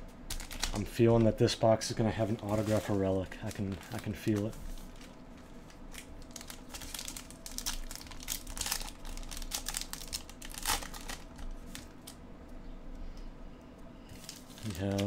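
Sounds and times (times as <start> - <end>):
wrapper crinkling and tearing: 0.3 - 1.3, 2.2 - 12.2, 14.1 - 15.0.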